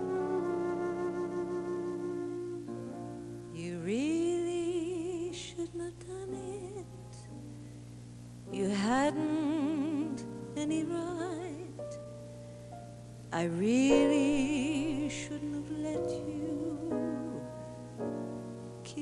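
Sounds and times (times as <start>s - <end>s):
woman singing with vibrato: 3.5s - 7.0s, 8.5s - 11.8s, 13.4s - 17.5s.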